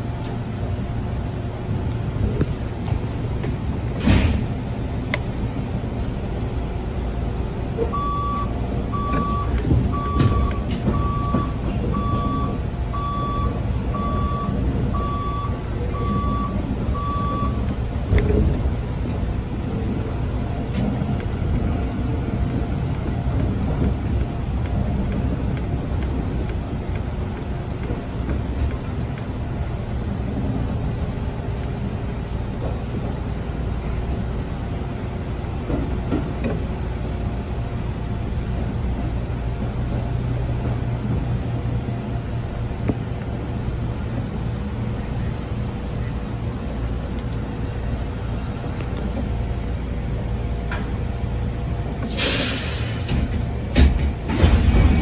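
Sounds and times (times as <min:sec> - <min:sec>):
electric train rumble: 0:00.0 - 0:55.0
short electronic warning beeps: 0:07.9 - 0:17.6.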